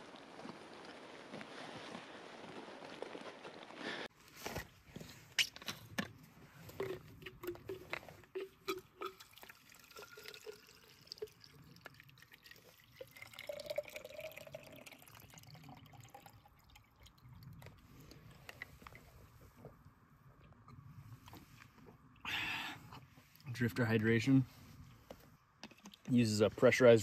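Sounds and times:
water dripping: 6.8s - 19.1s
water pouring into a container: 8.7s - 18.0s.

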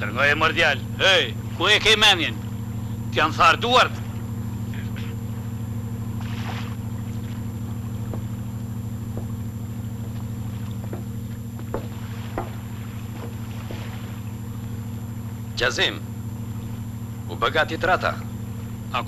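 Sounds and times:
boat engine humming: 0.0s - 19.0s
faint knocks: 7.7s - 14.4s.

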